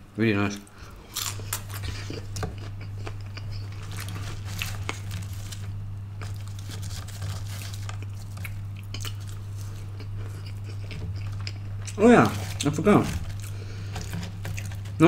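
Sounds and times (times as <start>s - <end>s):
steady low hum: 0.0s - 15.0s
paper packaging crinkling: 3.6s - 15.0s.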